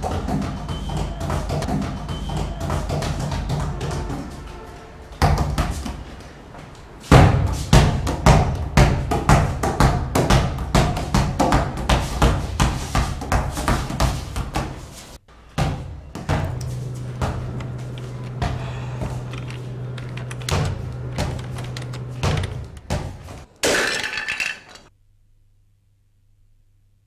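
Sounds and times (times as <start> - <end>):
sustained low tones: 16.0 - 22.9.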